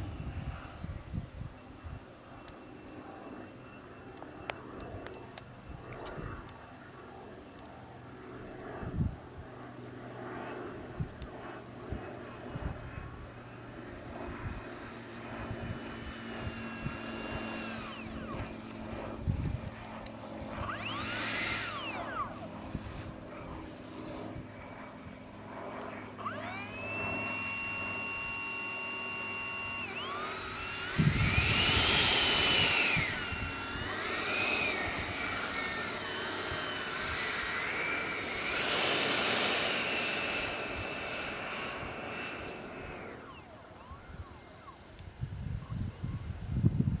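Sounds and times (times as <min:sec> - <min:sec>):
electric ducted fan whining: 0:00.0 - 0:47.0.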